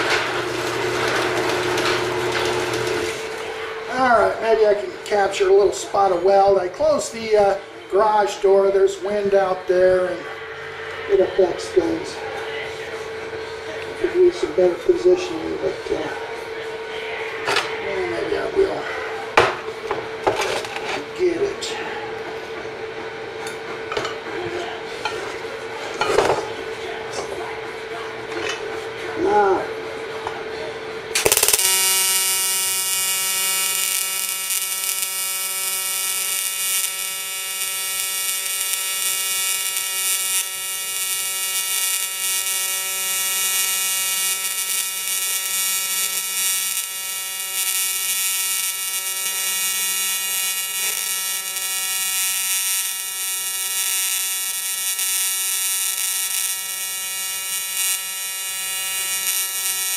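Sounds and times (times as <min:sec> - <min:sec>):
welding arc buzzing: 0:00.0 - 0:07.6, 0:31.1 - 0:59.9.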